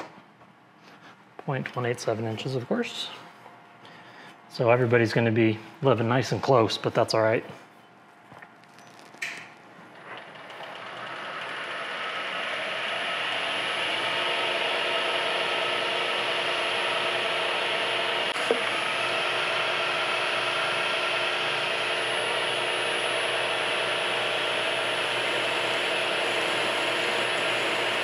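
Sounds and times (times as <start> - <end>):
milling machine spindle running: 9.9 - 28.0
drill boring into metal: 10.2 - 28.0.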